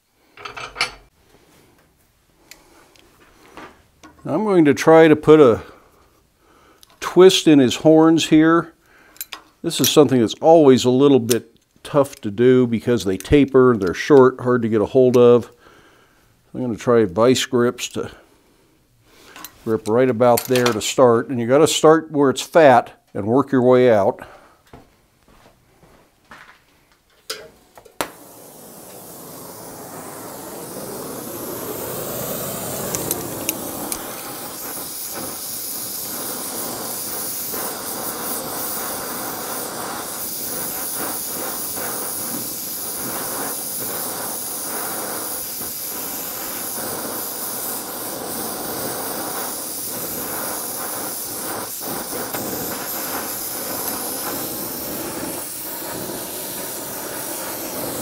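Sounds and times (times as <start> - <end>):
torch flame hissing: 2.4 - 8.8, 27.6 - 58.0
torch lighting pops: 27.3 - 58.0.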